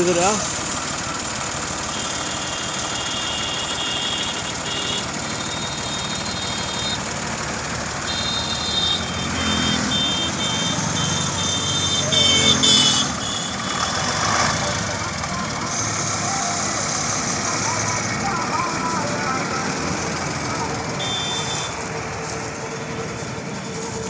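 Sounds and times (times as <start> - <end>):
diesel truck engine idling: 0.0 - 24.0
high-pitched beeping: 17.5 - 21.8.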